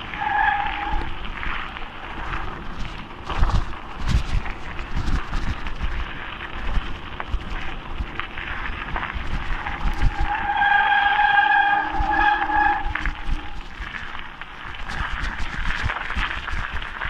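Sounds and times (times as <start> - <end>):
bike brakes squealing: 0.0 - 1.2, 10.0 - 14.0
bike rattling and bumping: 0.0 - 17.0
tyres crunching over gravel: 0.0 - 17.0.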